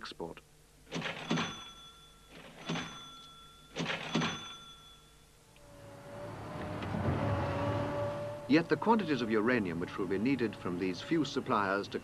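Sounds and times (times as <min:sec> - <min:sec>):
steady hum: 0:00.0 - 0:12.0
bell-like ring: 0:01.2 - 0:05.4
excavator engine and digging: 0:05.6 - 0:12.0.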